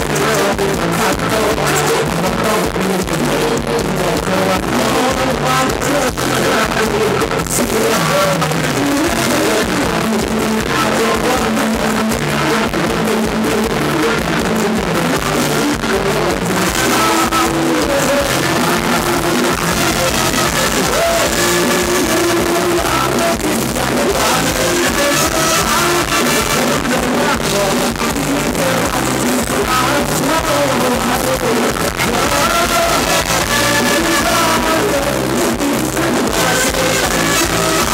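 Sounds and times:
drum kit and cymbals: 0:00.0 - 0:37.9
live dance band music: 0:00.0 - 0:37.9.

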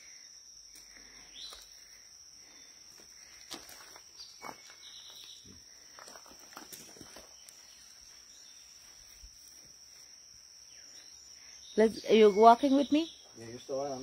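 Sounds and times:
high-pitched insect trill: 0:00.0 - 0:14.0
footsteps on gravel: 0:03.0 - 0:07.6.

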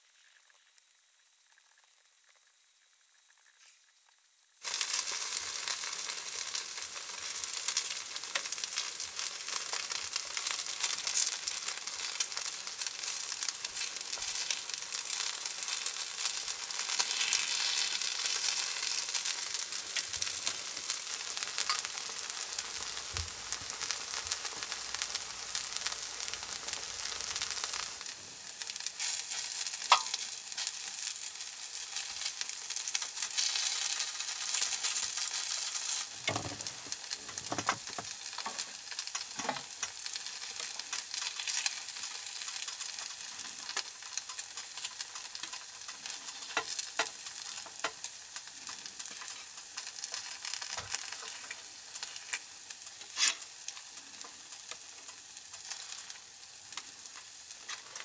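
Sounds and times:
batter sizzling in a pan: 0:00.0 - 0:58.0
wooden skewers clicking on pan: 0:21.6 - 0:21.9, 0:29.9 - 0:30.2, 0:35.9 - 0:41.8, 0:42.4 - 0:58.0.

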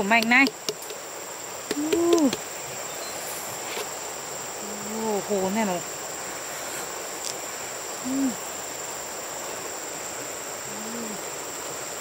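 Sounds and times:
high-pitched insect drone: 0:00.0 - 0:12.0
woman humming: 0:01.7 - 0:02.4, 0:04.6 - 0:05.6, 0:08.0 - 0:08.5, 0:10.6 - 0:11.4.

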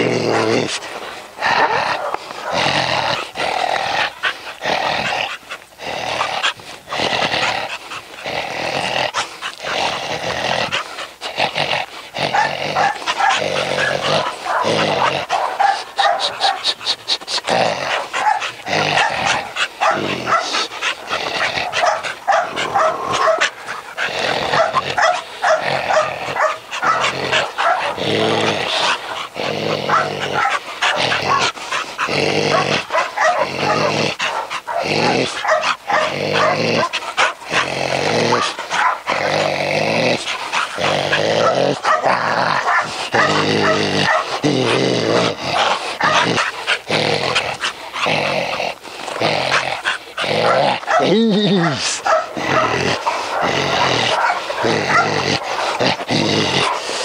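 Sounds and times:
dog barking and growling: 0:00.0 - 0:57.0.

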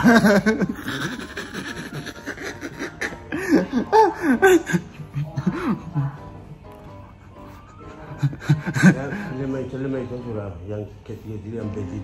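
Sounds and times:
man laughing: 0:00.0 - 0:05.8.

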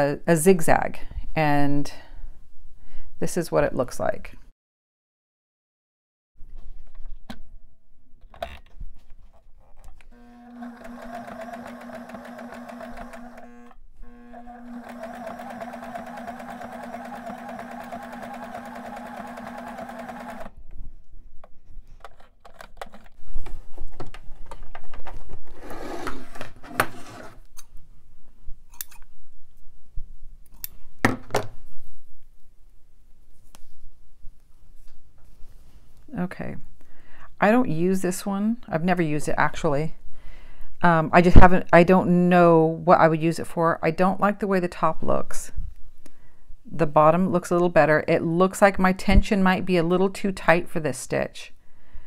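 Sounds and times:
sewing machine running: 0:10.2 - 0:20.5.

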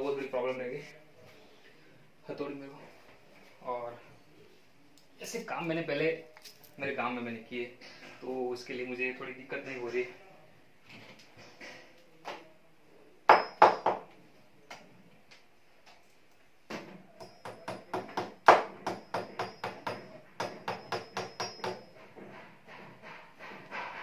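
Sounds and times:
hammer tapping with metallic ring: 0:13.3 - 0:14.1, 0:17.1 - 0:22.5.

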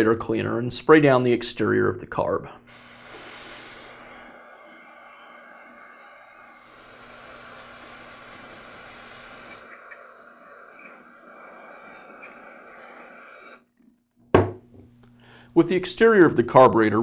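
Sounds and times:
aerosol can spraying hiss: 0:02.7 - 0:13.6.

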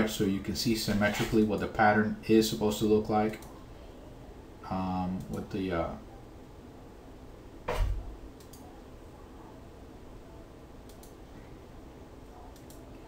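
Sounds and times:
computer mouse clicks: 0:08.4 - 0:08.7, 0:10.8 - 0:11.2, 0:12.5 - 0:13.0.

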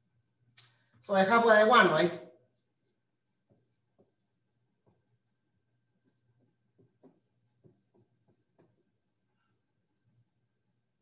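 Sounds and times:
marker writing on whiteboard: 0:00.0 - 0:11.0.

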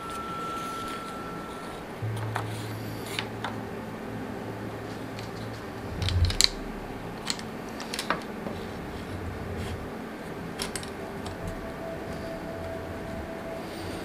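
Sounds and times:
bicycle parts clicking and knocking: 0:05.2 - 0:08.6, 0:10.6 - 0:11.6.

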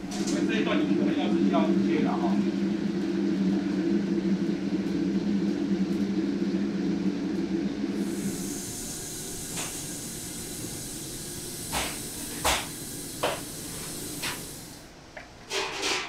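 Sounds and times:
steam hissing: 0:07.9 - 0:16.0.

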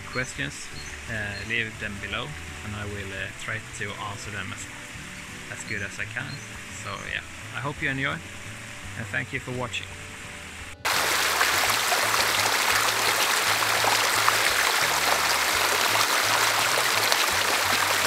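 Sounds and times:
creek running over rocks: 0:10.8 - 0:18.0.

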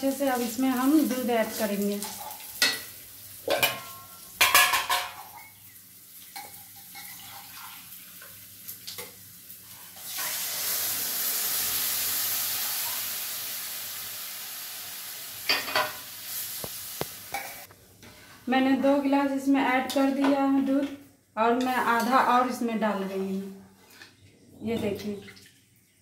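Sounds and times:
milk sizzling in hot pan: 0:00.0 - 0:18.5.

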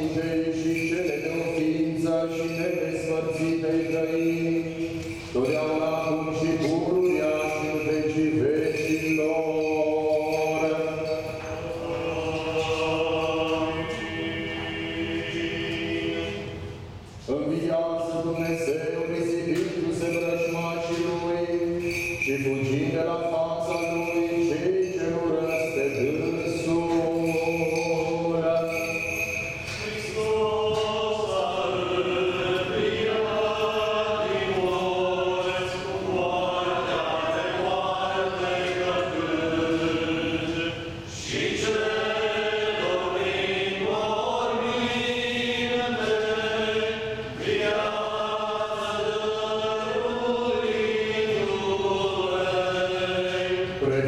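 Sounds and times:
group of voices chanting: 0:10.6 - 0:16.6, 0:29.8 - 0:54.0.

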